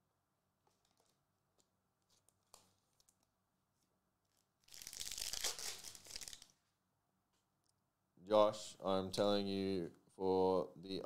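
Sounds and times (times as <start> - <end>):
foil pack tearing: 4.7 - 6.5.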